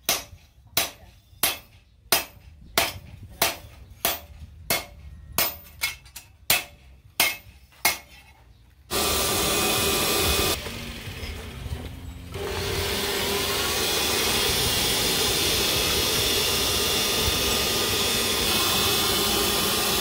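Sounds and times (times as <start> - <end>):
hammer striking steel on anvil: 0.0 - 8.4
electric blower rushing air: 8.9 - 20.0.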